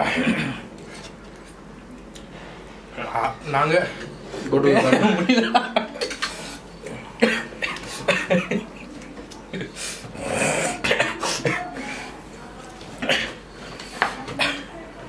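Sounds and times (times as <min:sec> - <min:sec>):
man clearing his throat: 0:00.0 - 0:00.7, 0:07.2 - 0:08.7, 0:09.6 - 0:11.8
man coughing: 0:00.0 - 0:00.7, 0:07.2 - 0:08.7, 0:10.4 - 0:11.8, 0:13.0 - 0:13.4.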